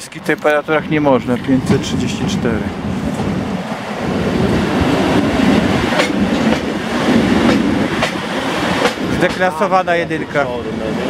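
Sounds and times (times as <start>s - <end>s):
train rumbling past: 0.0s - 11.0s
wheels clacking on rail joints: 3.1s - 10.0s.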